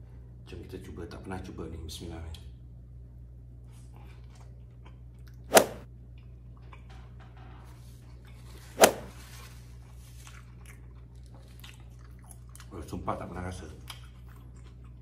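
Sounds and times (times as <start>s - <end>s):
person chewing food: 13.9s - 15.0s.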